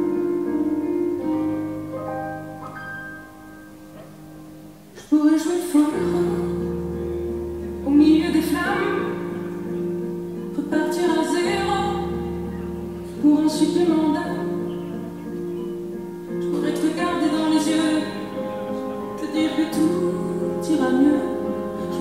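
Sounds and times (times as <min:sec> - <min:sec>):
woman singing: 0:05.0 - 0:07.0, 0:07.8 - 0:09.8, 0:10.4 - 0:15.4, 0:16.4 - 0:22.0.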